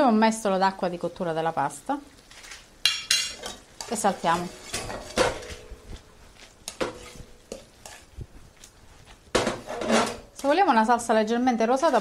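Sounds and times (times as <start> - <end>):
sizzling: 0.0 - 12.0
metal utensil scraping a frying pan: 2.3 - 5.9, 6.6 - 8.1, 9.4 - 10.4, 11.7 - 12.0.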